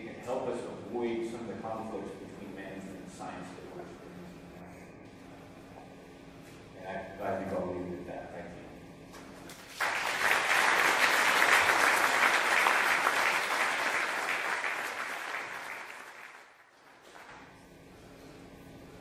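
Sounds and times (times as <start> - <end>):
audience applauding: 9.6 - 17.4.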